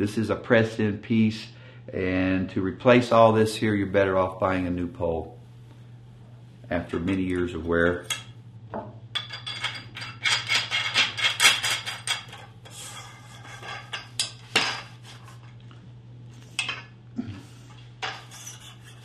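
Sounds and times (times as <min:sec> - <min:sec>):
metal parts clinking and rattling: 0:09.2 - 0:12.5.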